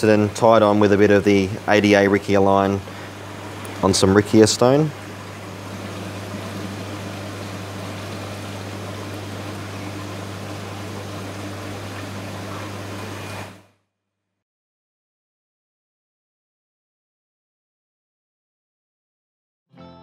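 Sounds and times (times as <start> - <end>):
steady hiss: 0.0 - 13.6
low electrical hum: 0.0 - 13.7.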